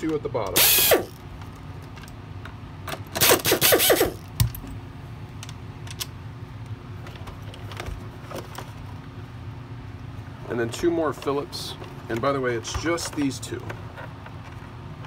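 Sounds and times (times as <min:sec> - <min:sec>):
loose screws clicking: 0:00.5 - 0:01.2, 0:03.2 - 0:04.5
air screwdriver whine: 0:00.6 - 0:01.2, 0:03.2 - 0:04.3.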